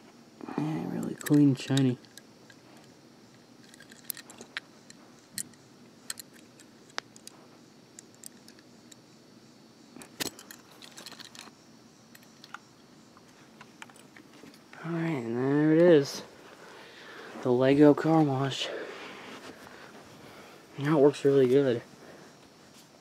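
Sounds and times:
toy truck clicking and rattling: 0:03.6 - 0:04.6, 0:10.2 - 0:11.5.

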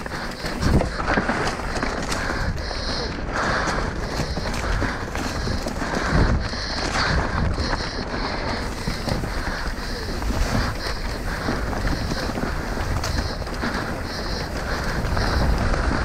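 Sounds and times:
bike clattering over rocks: 0:00.0 - 0:16.0
wind buffeting microphone: 0:00.0 - 0:16.0.

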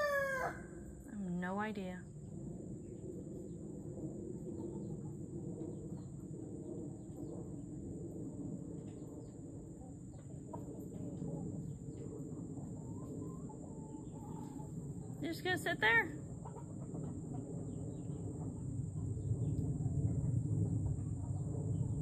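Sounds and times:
chicken calls: 0:00.0 - 0:00.7, 0:12.5 - 0:14.8
chickens clucking: 0:08.8 - 0:15.2, 0:16.3 - 0:19.0.

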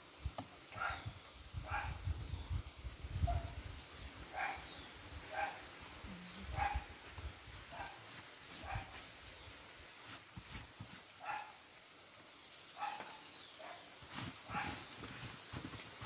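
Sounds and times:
dog barking: 0:00.8 - 0:01.1, 0:01.7 - 0:02.0, 0:04.3 - 0:04.7, 0:05.3 - 0:05.6, 0:06.5 - 0:06.9, 0:07.7 - 0:08.0, 0:08.6 - 0:08.9, 0:11.2 - 0:11.6, 0:12.8 - 0:13.9, 0:14.5 - 0:14.8.

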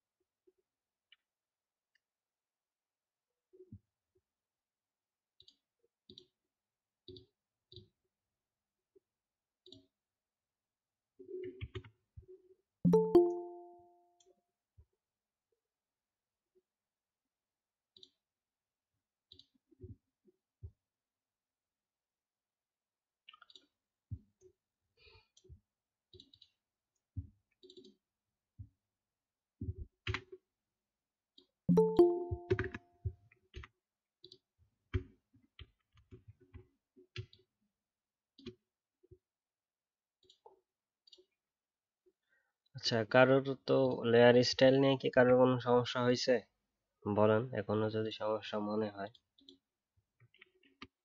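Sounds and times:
sound with held tones: 0:12.9 - 0:14.2, 0:31.7 - 0:32.9.

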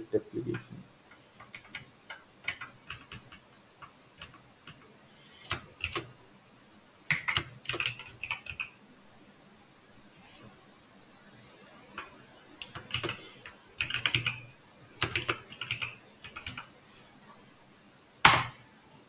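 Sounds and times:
computer keyboard typing: 0:00.5 - 0:04.8, 0:05.4 - 0:06.2, 0:07.1 - 0:08.8, 0:12.0 - 0:16.7.

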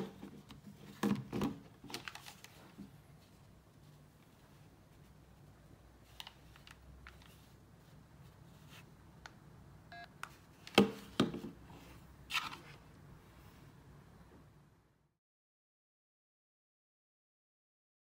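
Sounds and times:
phone keypad beep: 0:09.9 - 0:10.1.

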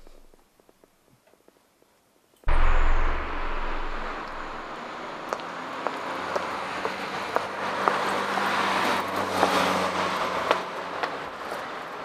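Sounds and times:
footsteps clicking on pavement: 0:00.0 - 0:02.0
car passing: 0:02.5 - 0:11.8.

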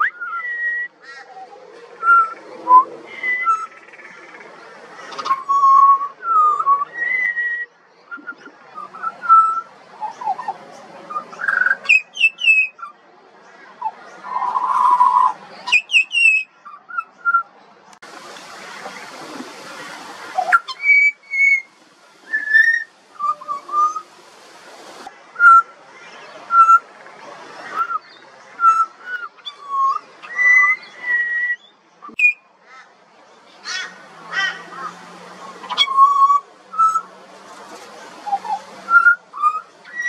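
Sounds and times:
bird whistling song: 0:00.0 - 0:01.0, 0:02.0 - 0:04.3, 0:05.0 - 0:13.0, 0:13.8 - 0:17.5, 0:20.4 - 0:24.1, 0:25.4 - 0:26.8, 0:27.6 - 0:32.4, 0:35.6 - 0:37.1, 0:38.2 - 0:40.0
rushing noise: 0:18.0 - 0:31.1.

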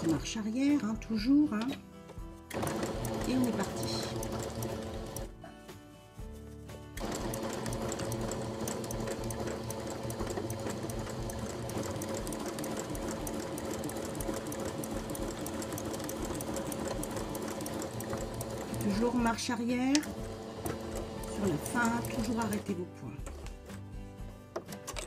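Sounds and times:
sewing machine stitching: 0:00.0 - 0:00.3, 0:02.5 - 0:05.3, 0:07.0 - 0:23.6.

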